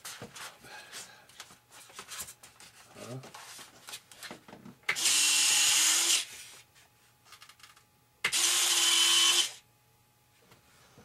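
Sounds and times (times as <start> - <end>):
electric motor whine: 5.0 - 6.3, 8.3 - 9.6.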